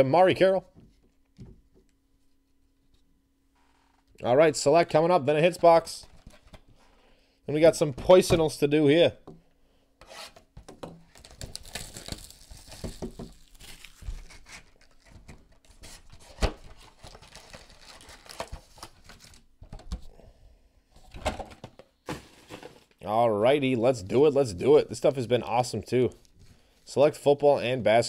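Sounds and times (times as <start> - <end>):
foil packs rustling: 11.0 - 19.5, 22.0 - 23.0
plastic wrap tearing and crinkling: 11.0 - 19.5.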